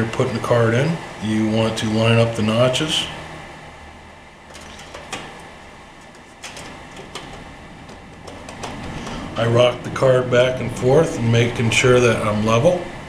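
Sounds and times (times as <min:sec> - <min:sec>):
graphics card tapping computer case: 0:04.5 - 0:09.3.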